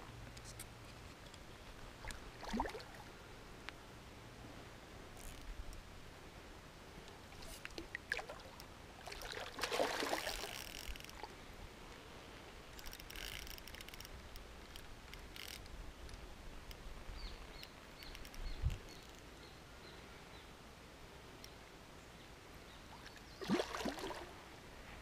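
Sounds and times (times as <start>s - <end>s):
water splashing: 2.0s - 3.1s, 7.4s - 11.3s, 23.4s - 24.4s
fishing reel clicks: 12.8s - 14.1s.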